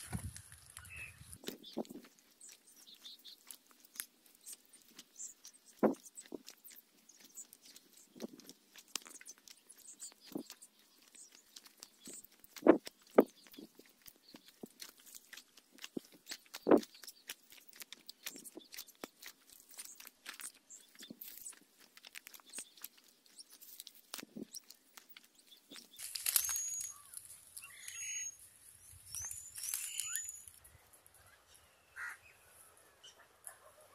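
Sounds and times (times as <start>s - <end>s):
high bird chirps: 0.8s - 3.5s, 24.4s - 33.2s
paste seal crackling and crunching: 1.4s - 27.9s.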